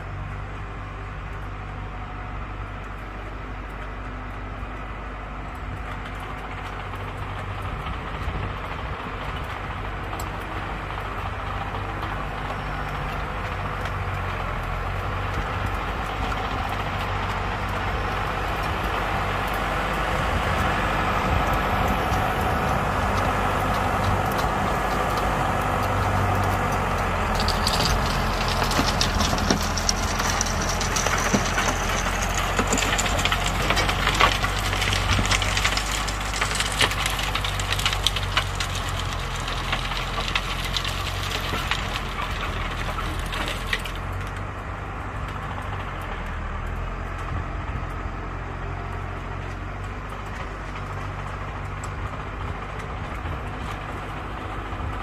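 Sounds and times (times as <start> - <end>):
tractor engine under load: 0.0 - 55.0
clods and stones striking tines: 16.3 - 44.0.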